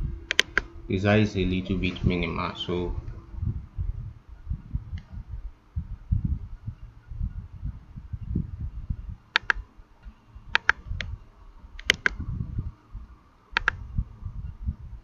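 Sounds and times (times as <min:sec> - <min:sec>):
low uneven rumble: 0:00.0 - 0:15.0
computer mouse clicking: 0:00.3 - 0:00.7, 0:09.3 - 0:09.6, 0:10.5 - 0:11.2, 0:11.8 - 0:12.2, 0:13.5 - 0:13.8.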